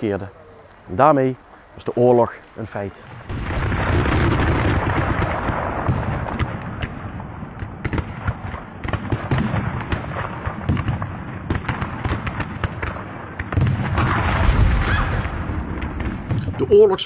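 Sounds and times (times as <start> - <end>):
loud blast: 13.6 - 16.8.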